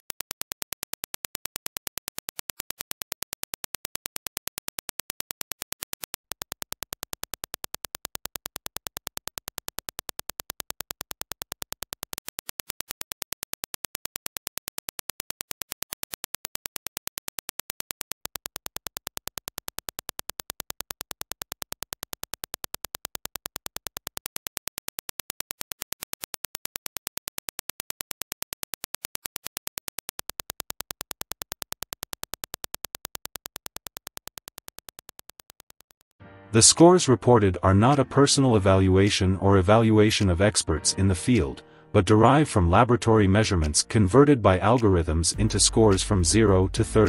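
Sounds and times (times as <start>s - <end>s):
rapid train of sharp clicks: 0.0s - 36.2s.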